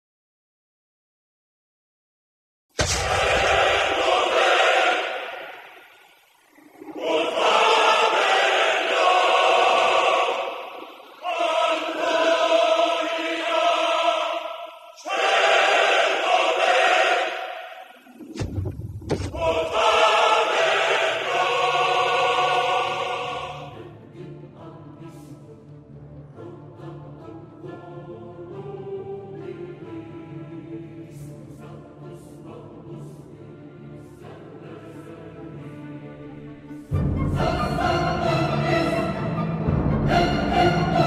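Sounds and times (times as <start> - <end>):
deep boom: 2.8 - 4.5, 18.3 - 19.8
choir singing held chords: 2.8 - 18.4, 19.2 - 41.0.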